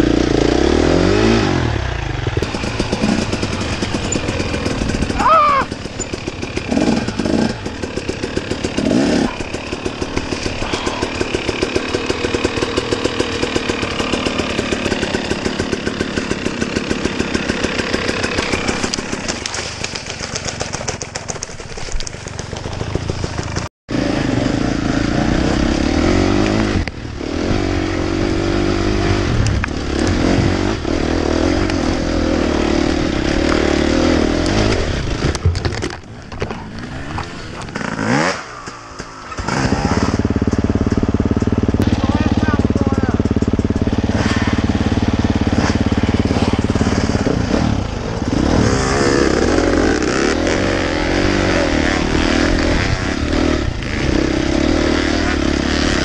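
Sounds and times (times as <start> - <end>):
dirt bike engine running: 0.0 - 56.0.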